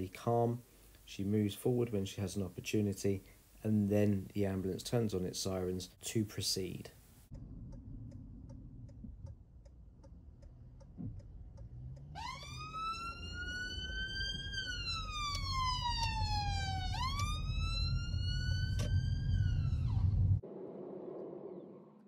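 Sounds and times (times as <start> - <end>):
car engine and road rumble: 7.3 - 20.6
ambulance siren wailing: 12.0 - 20.4.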